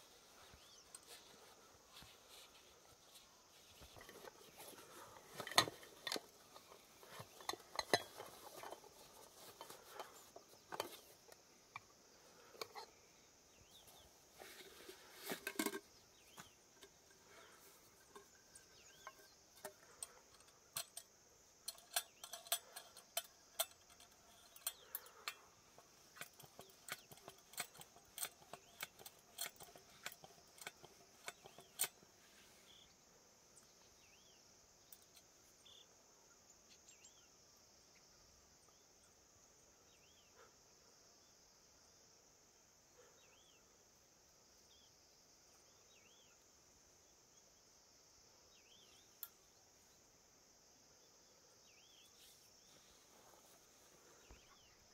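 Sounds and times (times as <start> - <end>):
high insect chirr: 0.0 - 54.9
metal pots clinking: 4.0 - 11.1, 14.6 - 15.9.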